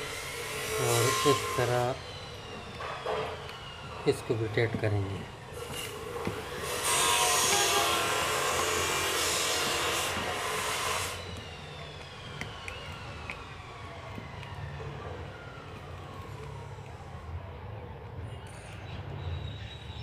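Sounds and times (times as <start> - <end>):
loud rushing machine noise: 0.0 - 15.7
electric motor winding down: 0.0 - 17.4.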